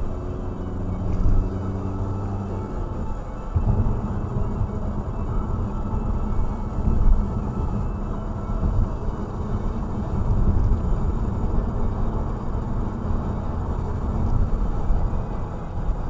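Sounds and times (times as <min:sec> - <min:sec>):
car tyres and engine rumble: 0:00.0 - 0:16.0.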